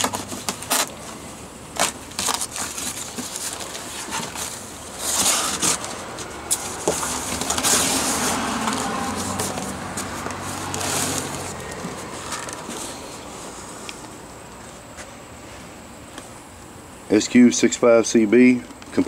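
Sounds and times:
packing tape pulling loose: 0:00.0 - 0:01.1, 0:01.8 - 0:11.5
cardboard flaps scraping and rustling: 0:00.0 - 0:13.7.

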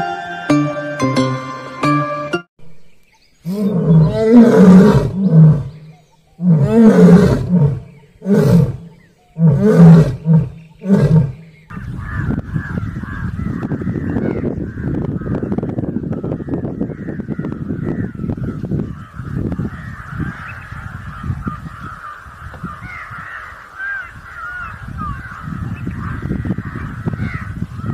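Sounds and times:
lion roaring: 0:03.4 - 0:05.8, 0:06.4 - 0:11.5.

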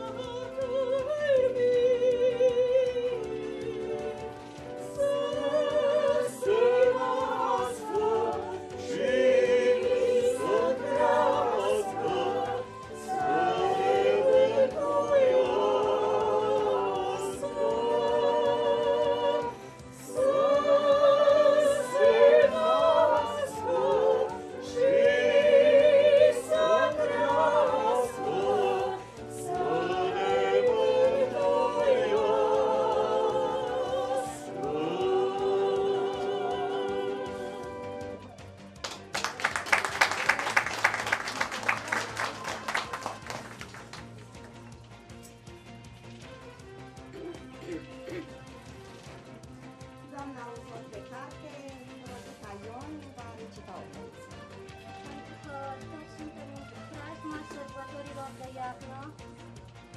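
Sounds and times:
women singing together: 0:00.0 - 0:38.2.

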